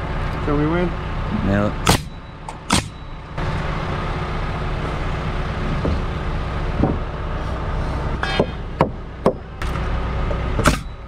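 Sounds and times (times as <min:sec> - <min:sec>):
engine drone: 0:00.0 - 0:11.0
nail gun firing into wood: 0:01.9 - 0:02.1, 0:02.7 - 0:03.0, 0:10.6 - 0:10.9.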